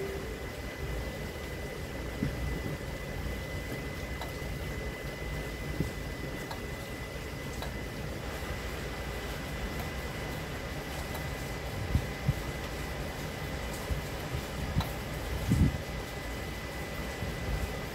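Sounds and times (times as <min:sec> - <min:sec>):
thin steady high tone: 0:00.0 - 0:10.7
air conditioning hum: 0:00.0 - 0:17.9.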